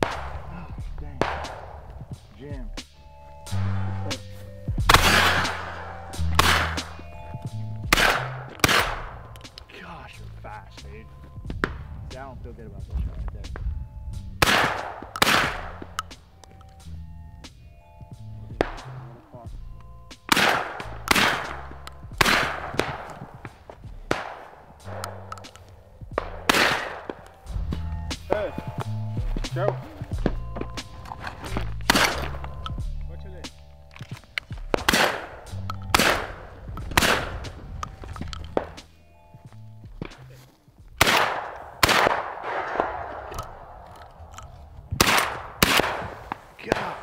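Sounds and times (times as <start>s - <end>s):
shotgun blasts with echo: 0.0s - 2.7s, 4.8s - 7.0s, 7.8s - 9.9s, 14.4s - 16.2s, 18.5s - 19.5s, 20.2s - 27.5s, 28.1s - 38.9s, 41.0s - 44.3s, 44.9s - 47.0s.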